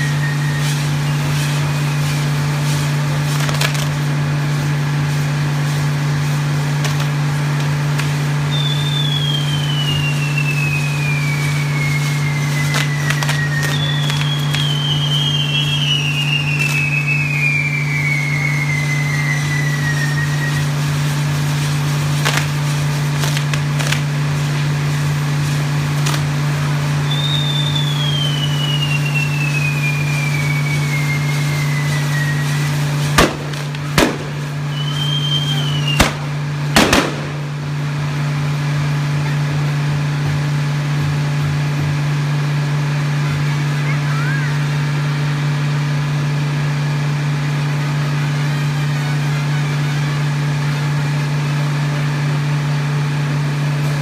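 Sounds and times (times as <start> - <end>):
falling firework whistles: 0.0 - 54.0
hiss of burning fireworks: 0.0 - 54.0
low hum: 0.0 - 54.0
loud sharp bangs: 31.4 - 37.9.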